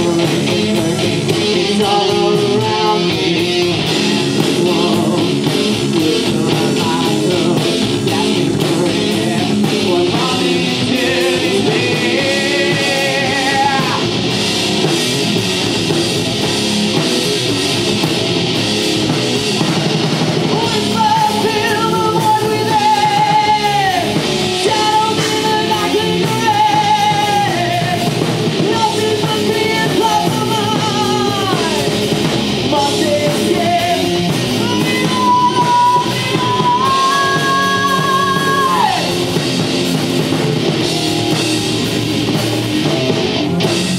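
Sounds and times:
person singing long notes: 0.0s - 14.1s, 32.7s - 39.2s
bass guitar: 0.0s - 43.9s
drum kit: 0.0s - 43.9s
electric guitar: 0.0s - 43.9s.

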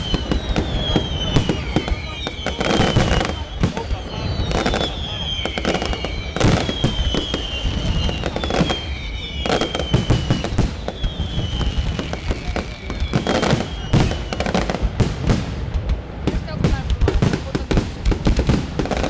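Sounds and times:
falling firework whistles: 0.0s - 15.5s
fireworks bursting: 0.0s - 19.0s.

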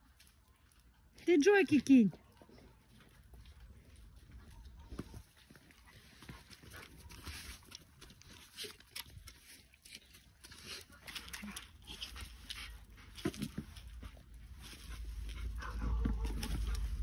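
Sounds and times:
low rumble: 14.4s - 17.0s.

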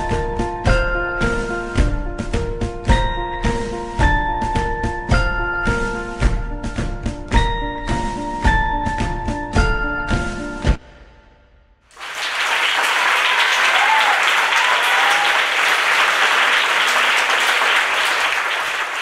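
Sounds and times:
audience applause: 11.9s - 19.0s.

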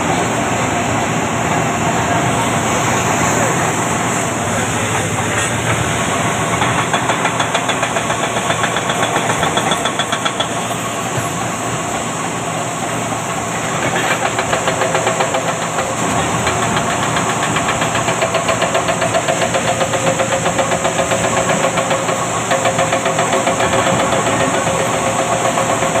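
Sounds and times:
heavy diesel engines throbbing: 0.0s - 26.0s.

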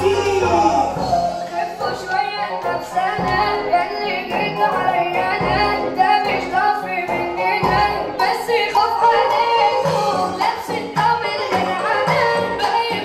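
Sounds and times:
melody over a steady beat: 0.0s - 8.2s
person singing: 0.0s - 13.0s.

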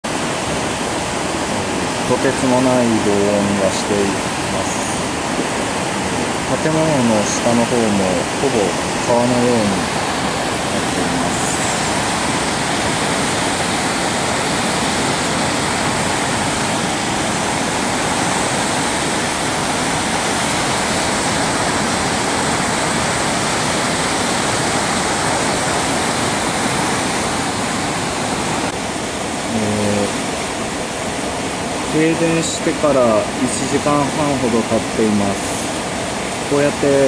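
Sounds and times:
floodwater rushing: 0.0s - 37.0s.

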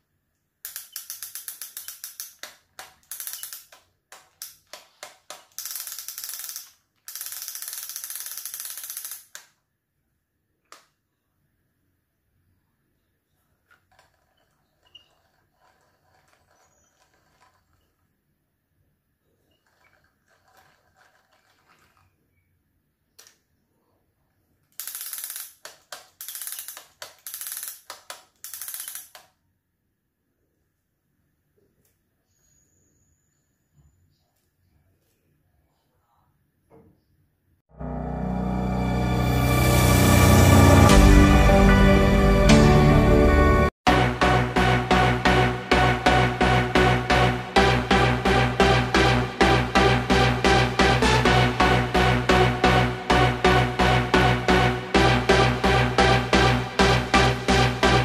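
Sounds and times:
fishing reel ratchet clicking: 0.7s - 9.6s, 24.8s - 29.3s.

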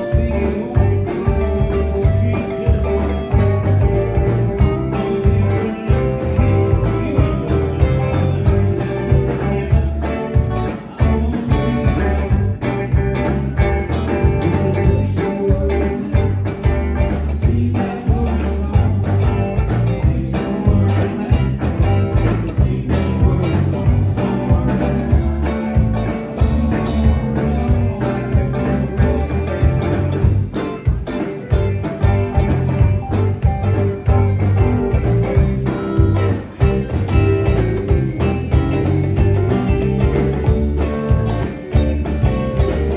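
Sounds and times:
blues band playing: 0.0s - 42.9s.

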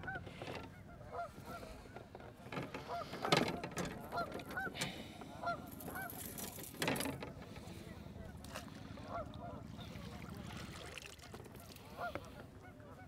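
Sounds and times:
geese honking: 0.0s - 1.8s, 4.0s - 6.2s, 8.9s - 10.1s, 11.6s - 13.0s.

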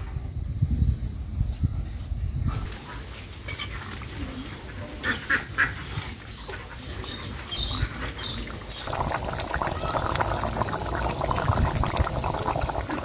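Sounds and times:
curry boiling and bubbling: 8.4s - 13.0s.

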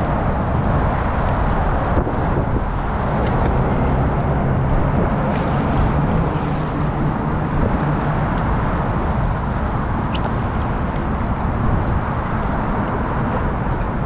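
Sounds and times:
faint water drip ticks: 0.0s - 4.7s
water and wind rumble: 0.0s - 14.0s.

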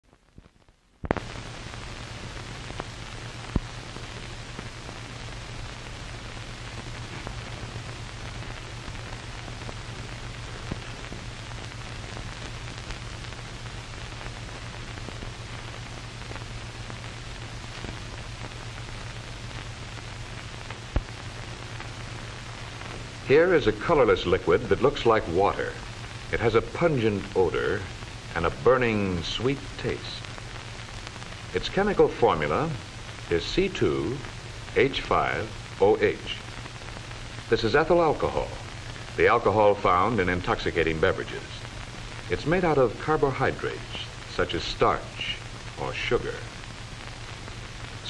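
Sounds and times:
film soundtrack hiss: 0.0s - 48.0s
clicks and pops: 0.3s - 1.4s.

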